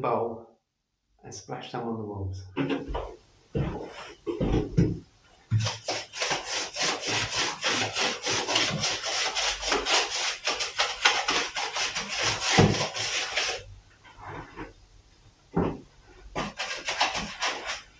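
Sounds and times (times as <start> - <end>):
tool scraping plaster in bucket: 2.6 - 4.9, 5.5 - 14.8, 15.6 - 17.9.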